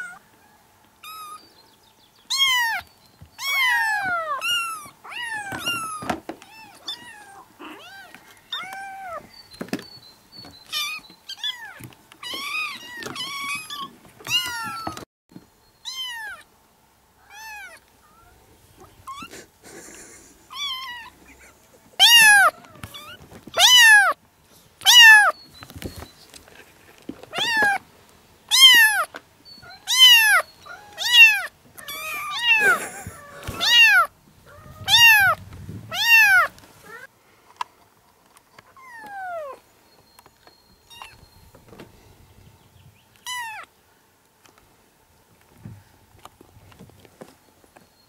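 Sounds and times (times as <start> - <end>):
kittens meowing: 0.0 - 0.2, 2.3 - 9.3, 10.6 - 15.0, 15.8 - 16.5, 17.2 - 24.2, 24.8 - 25.4, 27.3 - 27.8, 28.5 - 37.1, 38.7 - 39.6, 40.9 - 41.2, 43.2 - 43.7.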